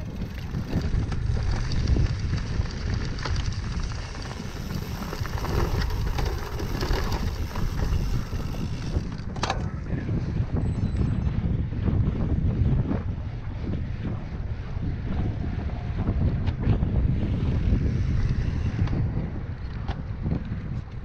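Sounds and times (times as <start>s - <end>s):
tyres rolling over dirt: 0.0s - 9.8s
bike rattling: 0.0s - 21.0s
wind buffeting microphone: 0.0s - 21.0s.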